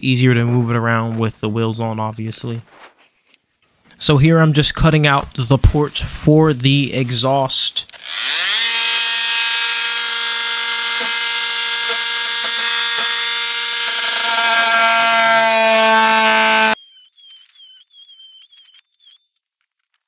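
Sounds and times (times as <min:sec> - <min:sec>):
power drill hole saw whining: 0:07.9 - 0:19.4.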